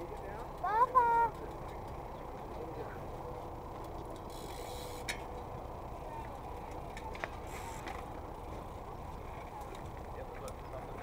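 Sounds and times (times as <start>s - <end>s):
low background noise: 0.0s - 11.0s.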